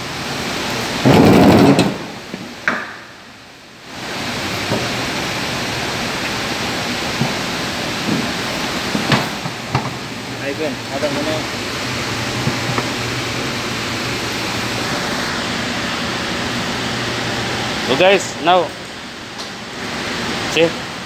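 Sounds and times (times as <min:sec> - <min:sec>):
steady hiss: 0:00.0 - 0:21.0
plastic tub scraping thud: 0:01.1 - 0:02.1.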